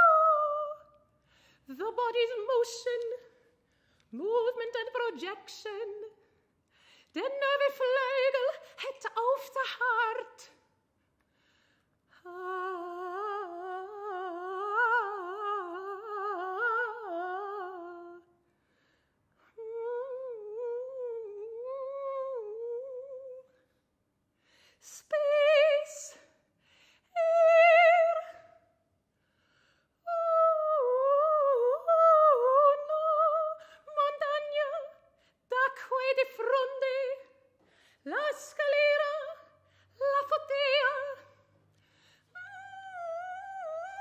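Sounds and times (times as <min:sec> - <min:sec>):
woman singing wordlessly: 0:00.0 - 0:01.0, 0:01.7 - 0:03.4, 0:04.1 - 0:06.2, 0:07.1 - 0:10.7, 0:12.2 - 0:18.3, 0:19.4 - 0:23.6, 0:24.8 - 0:26.4, 0:27.1 - 0:28.6, 0:30.0 - 0:41.5, 0:42.3 - 0:44.0.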